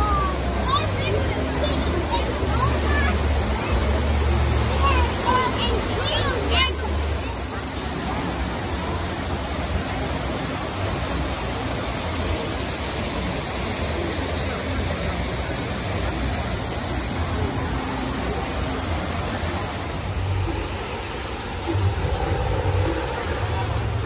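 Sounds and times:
waterfall rushing into pool: 0.0 - 24.0.

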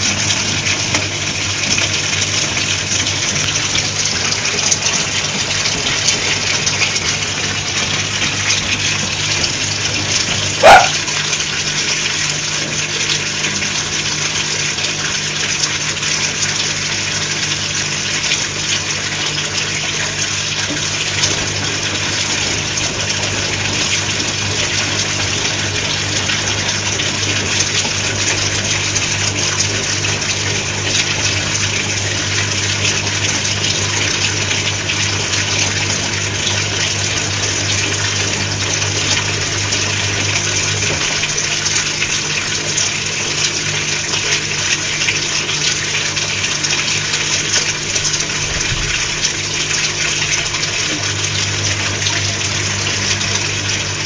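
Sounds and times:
low motor hum: 0.0 - 15.6, 16.2 - 54.0
water rushing in washing machine drum: 0.0 - 54.0.

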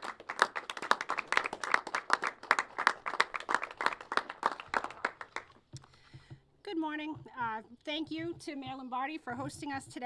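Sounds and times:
people clapping: 0.0 - 5.8.

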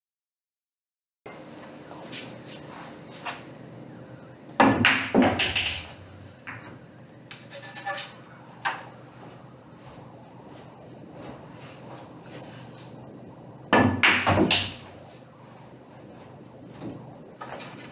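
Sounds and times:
billiard balls clacking: 4.6 - 7.4, 13.7 - 15.0
balls clicking on cushions: 4.8 - 6.6, 13.8 - 14.8.

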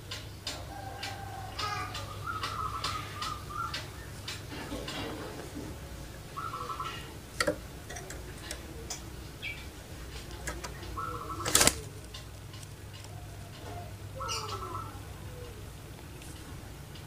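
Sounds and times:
doves rolling calls: 0.0 - 17.0
ticks and clicks: 7.4 - 9.2, 10.1 - 13.6.

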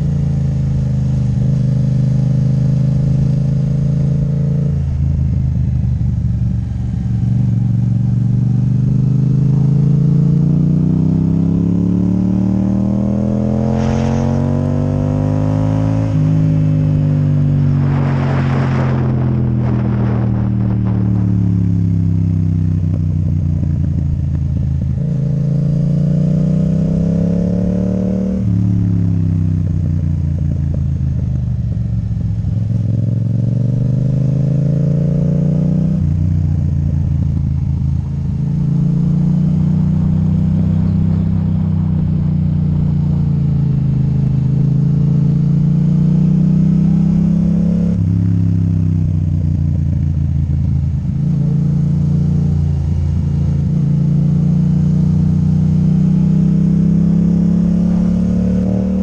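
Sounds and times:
loud motorcycle engine revving: 8.1 - 23.8, 24.8 - 29.8, 38.4 - 49.9, 50.6 - 59.0.

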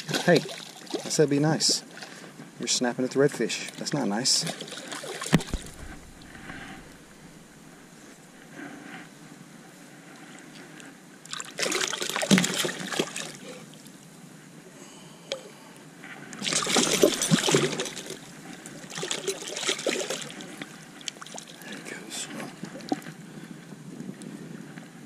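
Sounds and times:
fish thrashing and splashing: 4.4 - 7.8, 11.3 - 13.4, 16.4 - 18.2, 18.8 - 21.6.

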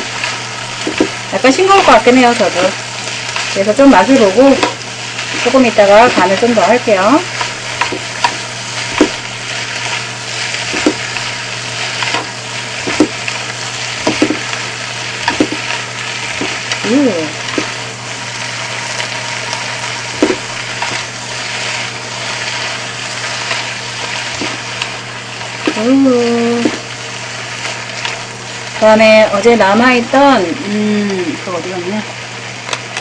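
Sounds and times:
food sizzling in a frying pan: 0.0 - 33.0
utensils knocking against a pan: 0.8 - 1.2, 7.4 - 9.3, 10.7 - 11.2, 12.0 - 13.3, 14.0 - 14.5, 15.2 - 15.8, 20.1 - 21.0.

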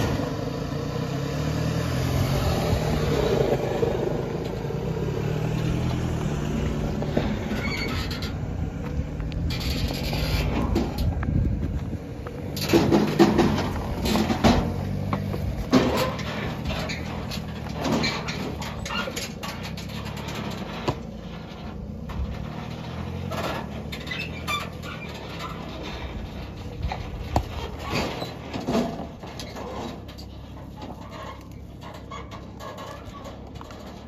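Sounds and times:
truck engine under load: 0.0 - 34.0
tyres knocking over rock: 12.5 - 30.2.

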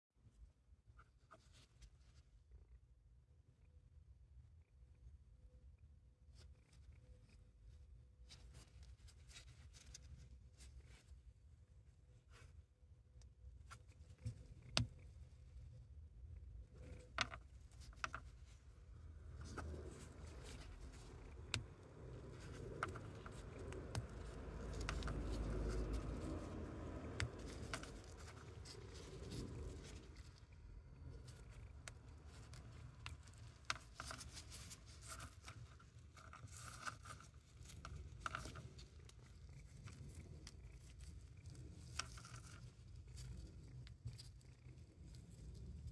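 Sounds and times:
faint crumbling and rubbing: 0.8 - 2.7, 6.2 - 45.9
mothball crackling and snapping: 19.2 - 45.7.

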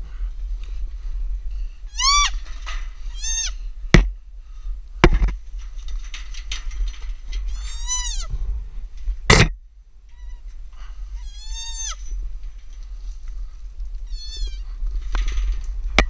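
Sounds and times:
fawn bleating: 1.9 - 2.4, 3.1 - 3.6, 7.5 - 8.3, 10.1 - 10.5, 11.2 - 12.2, 14.0 - 14.7
sharp knocks: 5.0 - 5.4.

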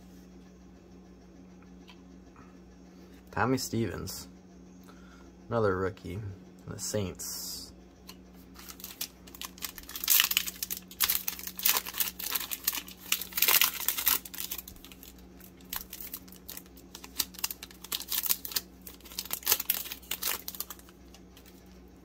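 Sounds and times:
foil wrapper crinkling and tearing: 8.4 - 21.8.

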